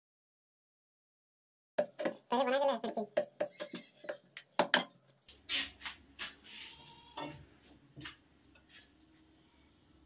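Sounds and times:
rolling pin on wooden board: 1.8s - 4.9s
faint low hum: 6.2s - 10.0s.

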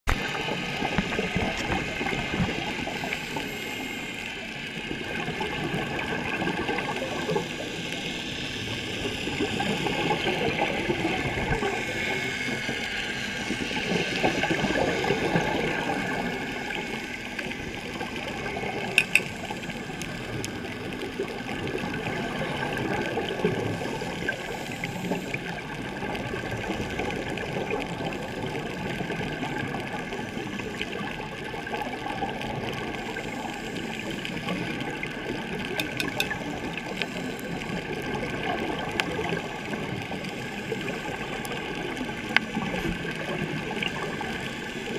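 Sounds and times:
exhaled bubbles underwater: 0.1s - 44.9s
diver regulator breathing: 23.5s - 25.7s, 32.9s - 38.1s.

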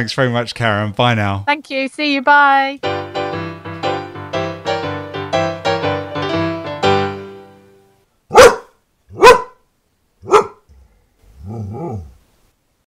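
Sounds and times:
piano music: 2.8s - 8.0s
dog barking: 8.3s - 10.7s.

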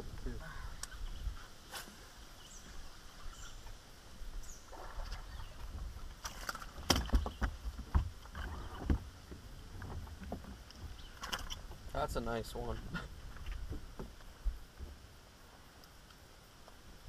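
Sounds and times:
water splashing: 4.5s - 11.6s
knocks and thumps on boat deck: 6.7s - 11.0s, 13.6s - 14.2s.

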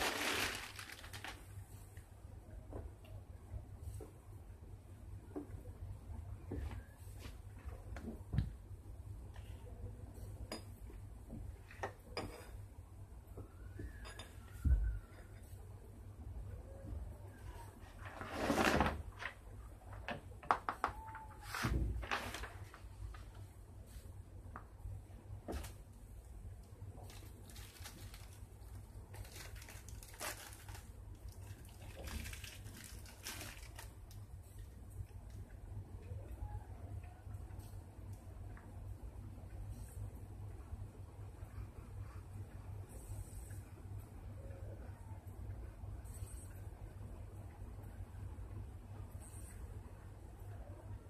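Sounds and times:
paper rustling: 0.0s - 1.5s, 21.4s - 23.4s, 27.0s - 34.0s
low steady hum: 0.0s - 51.0s.

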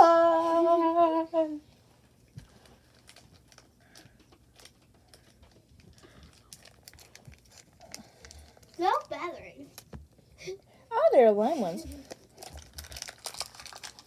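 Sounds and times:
light clicks and crinkling: 1.7s - 10.3s, 11.8s - 14.0s.

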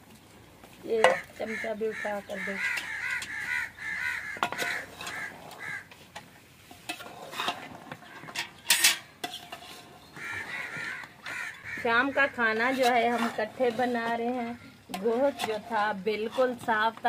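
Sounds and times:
crows cawing: 1.1s - 5.9s, 10.2s - 12.5s
metal ladle scraping pot: 4.4s - 16.7s.

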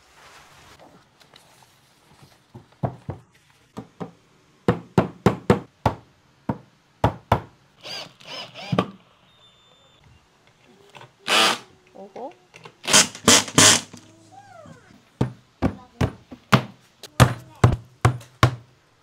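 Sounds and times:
hammer knocking on wood: 3.8s - 7.5s, 15.2s - 18.6s
cordless drill driving screw: 7.8s - 8.8s, 11.3s - 11.7s, 12.9s - 14.0s.

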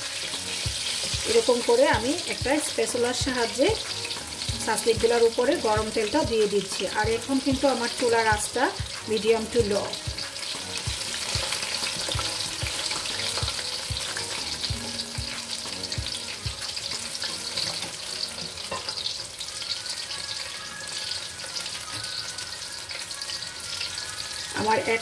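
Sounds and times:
food deep-frying in hot oil: 0.0s - 25.0s.

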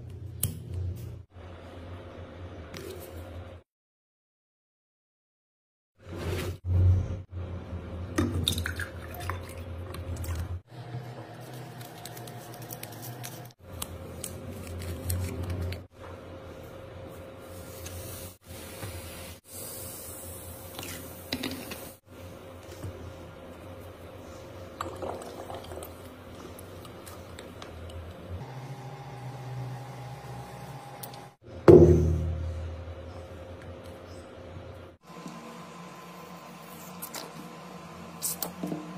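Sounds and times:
water pouring into glass: 24.8s - 26.0s.

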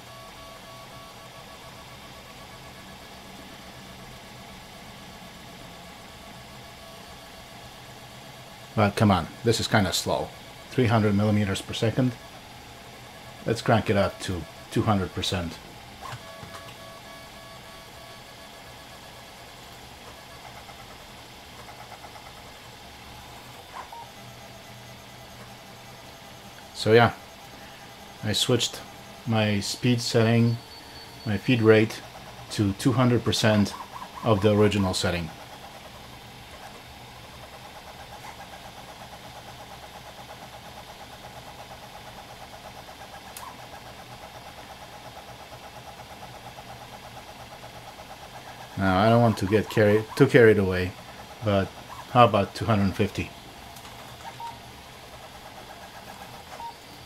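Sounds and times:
steady low hum: 0.0s - 57.0s
stepper motors whining: 5.4s - 57.0s.

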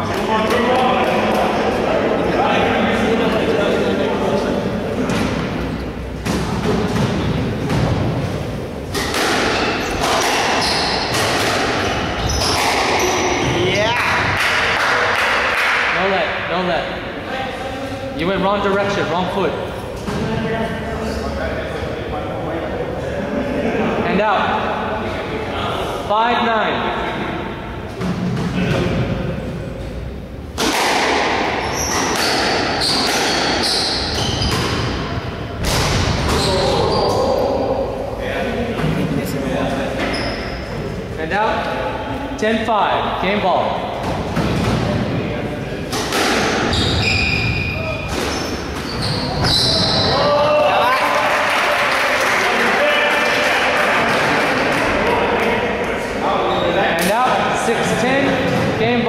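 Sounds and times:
squash ball struck by rackets: 8.9s - 13.0s, 30.6s - 36.4s, 45.9s - 46.7s
shoes squeaking on wooden floor: 9.6s - 13.7s, 31.6s - 34.9s, 40.0s - 40.7s, 46.6s - 50.2s.

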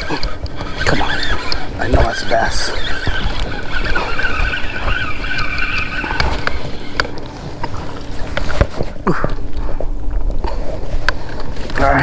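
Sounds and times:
fishing reel whirring: 0.0s - 8.8s
fish splashing: 0.0s - 9.8s
wind buffeting microphone: 0.0s - 12.0s.

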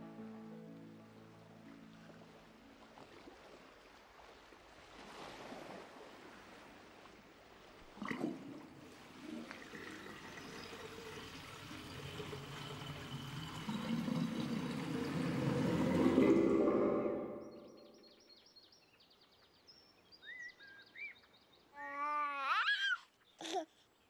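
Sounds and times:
water trickling and lapping: 0.8s - 18.2s.

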